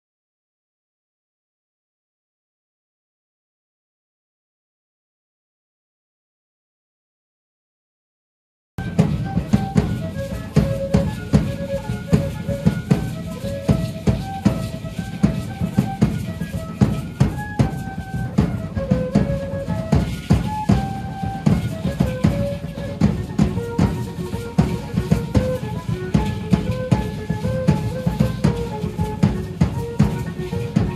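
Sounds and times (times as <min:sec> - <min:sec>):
drum beating fast rhythm: 0:08.8 - 0:30.9.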